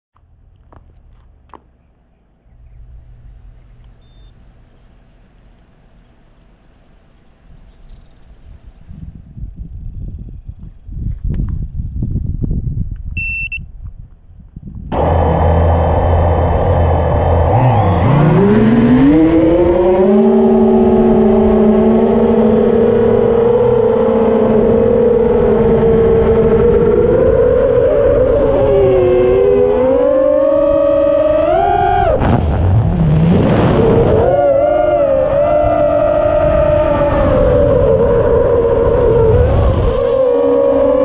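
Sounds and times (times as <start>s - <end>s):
short beep: 3.9s - 4.4s, 13.2s - 13.7s
drone motors whining: 14.9s - 41.0s.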